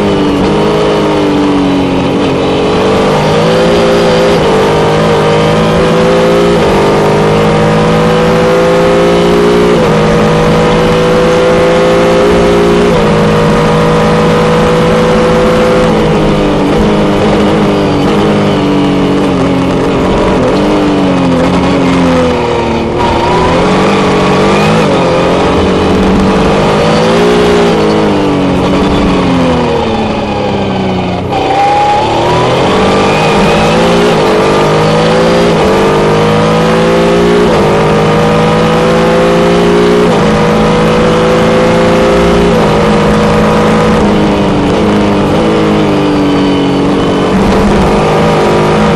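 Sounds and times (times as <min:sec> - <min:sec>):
race car engine revving: 0:00.0 - 0:48.9.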